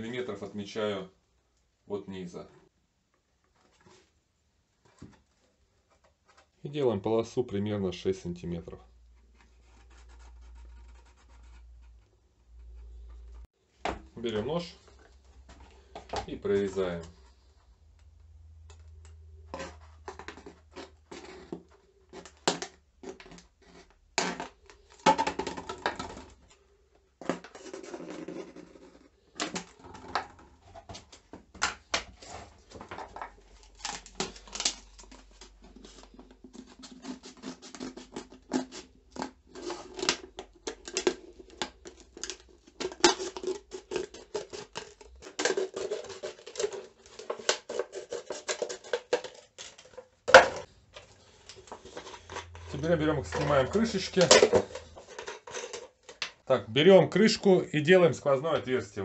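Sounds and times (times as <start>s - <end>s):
plastic bottles being cut: 18.7s - 26.5s, 27.2s - 50.7s.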